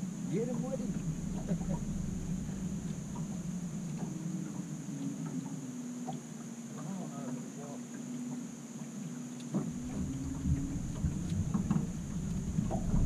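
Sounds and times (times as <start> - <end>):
low steady rumble: 0.0 - 6.0, 9.6 - 13.0
faint ticks: 0.8 - 13.0.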